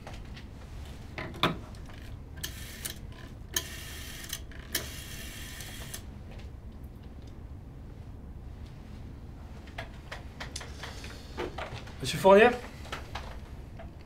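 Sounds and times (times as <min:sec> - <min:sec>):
rotary dial whirring: 0:01.7 - 0:06.1.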